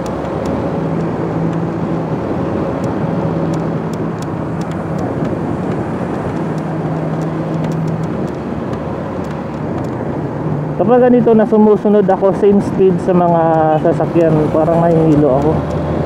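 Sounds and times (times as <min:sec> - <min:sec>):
motorcycle engine hum: 0:00.0 - 0:16.0
wind rushing over microphone: 0:00.0 - 0:16.0.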